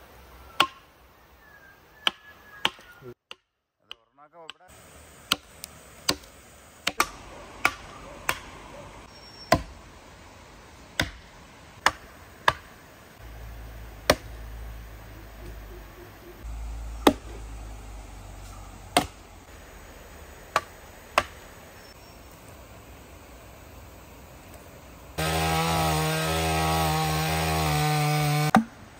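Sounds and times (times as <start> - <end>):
axe chopping into wood: 5.3 - 8.5, 9.5 - 9.7, 11.0 - 12.7, 14.0 - 14.4, 17.0 - 17.4, 18.9 - 19.2, 20.5 - 21.4, 28.1 - 28.7.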